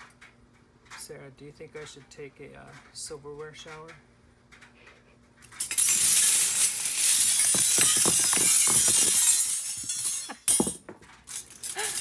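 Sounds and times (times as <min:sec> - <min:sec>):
cutlery clattering and jangling: 0:05.6 - 0:12.0.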